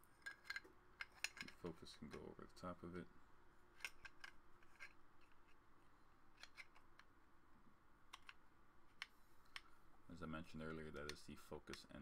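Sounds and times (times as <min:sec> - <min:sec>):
metallic clicks and scrapes: 0:00.0 - 0:02.3, 0:03.7 - 0:05.6, 0:06.3 - 0:07.1.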